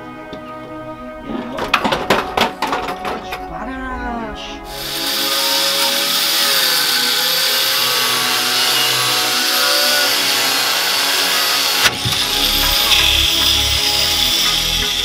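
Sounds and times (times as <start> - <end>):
angle grinder cutting steel: 4.7 - 15.0.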